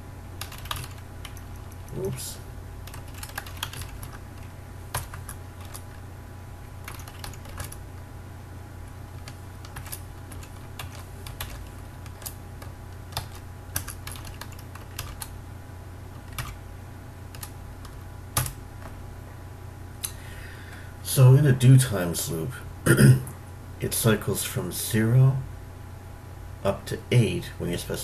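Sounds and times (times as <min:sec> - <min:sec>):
low steady hum: 0:00.0 - 0:28.0
keyboard keys clicking: 0:00.4 - 0:01.7, 0:02.8 - 0:06.0, 0:06.9 - 0:07.8, 0:09.2 - 0:15.3, 0:16.2 - 0:16.6.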